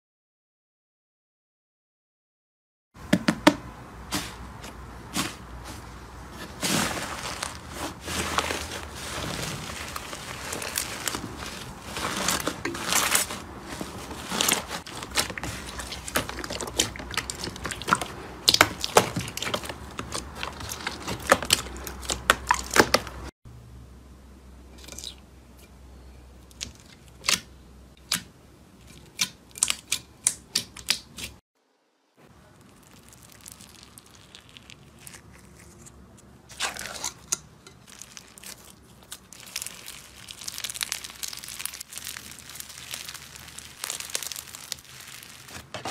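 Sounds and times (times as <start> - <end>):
slime crackling and popping: 6.7 - 13.4, 14.2 - 23.3, 32.6 - 35.9, 37.8 - 45.7.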